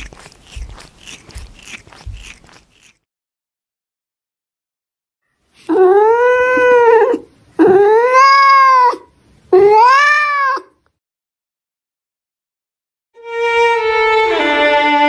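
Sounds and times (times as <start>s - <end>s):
cat meowing: 5.8s - 10.7s.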